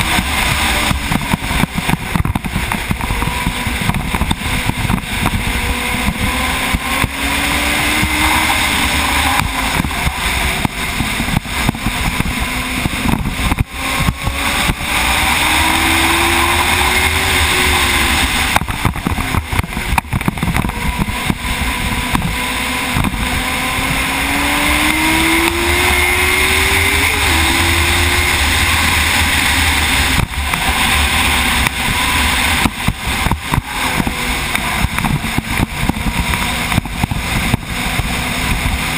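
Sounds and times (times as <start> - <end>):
racing motorcycle engine: 0.0 - 38.9
wind rushing over camera: 0.0 - 38.9.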